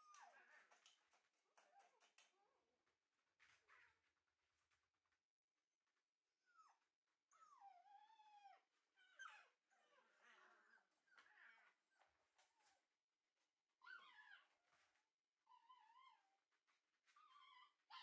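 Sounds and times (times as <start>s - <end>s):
puppy whining and whimpering: 6.2s - 12.8s, 13.8s - 14.6s, 15.4s - 16.4s, 17.0s - 18.0s.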